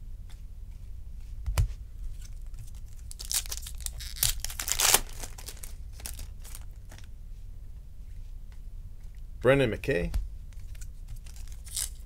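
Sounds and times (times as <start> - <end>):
steady low hum: 0.0 - 12.0
cards rustling and sliding: 10.6 - 12.0.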